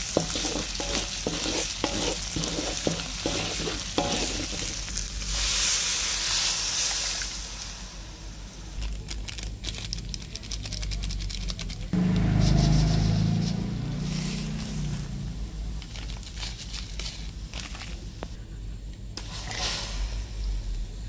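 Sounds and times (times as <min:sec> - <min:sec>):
metal spatula scraping wok: 0:00.0 - 0:07.2.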